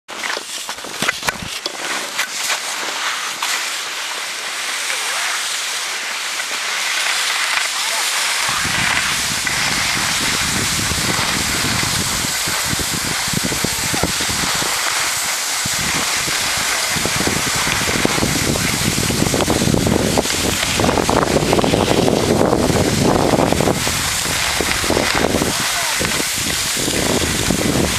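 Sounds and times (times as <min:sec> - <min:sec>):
skis sliding on snow: 0:00.1 - 0:27.9
wind hiss: 0:02.3 - 0:27.9
wind buffeting microphone: 0:08.4 - 0:27.9.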